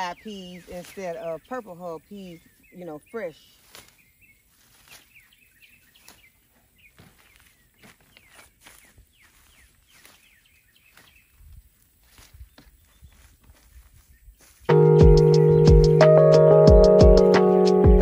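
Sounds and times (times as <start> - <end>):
small bird chirping: 0.0 - 17.1
pea pods snapping and rustling: 3.5 - 14.6.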